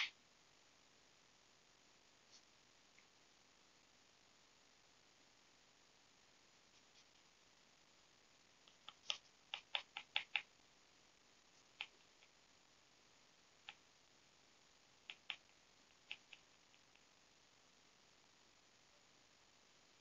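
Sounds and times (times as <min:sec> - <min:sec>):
pencil scratching on paper: 0:08.7 - 0:10.5.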